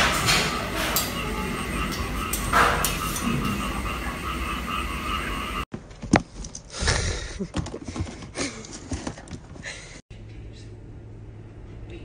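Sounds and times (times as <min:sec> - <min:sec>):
frog-like calls: 0:01.2 - 0:05.6.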